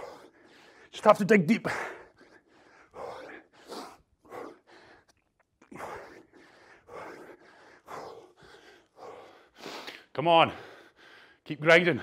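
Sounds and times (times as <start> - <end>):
man breathing hard: 0.0 - 1.0, 1.6 - 12.0.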